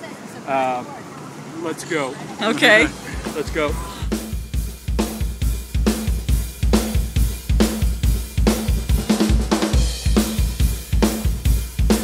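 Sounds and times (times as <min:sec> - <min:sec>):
drum kit beat: 0:02.6 - 0:12.0.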